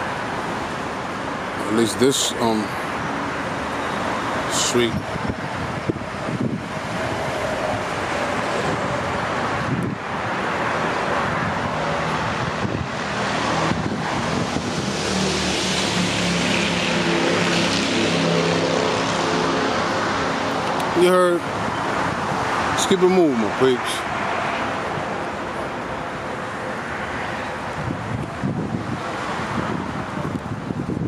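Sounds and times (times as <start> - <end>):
street traffic noise: 0.0 - 31.0
vehicle engine humming: 0.0 - 31.0
wind on microphone: 4.0 - 22.8, 27.5 - 31.0.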